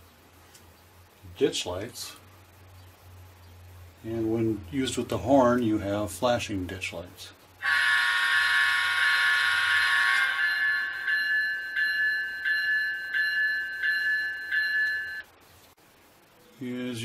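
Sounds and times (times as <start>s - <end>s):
model locomotive horn chord: 7.6s - 11.2s
locomotive bell ringing: 7.6s - 15.3s.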